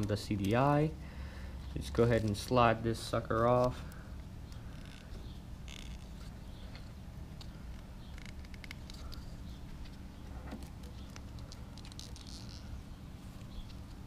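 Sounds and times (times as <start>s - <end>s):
low steady hum: 0.0s - 14.0s
rubber sleeve clicking and rubbing: 4.5s - 10.0s, 10.6s - 12.8s.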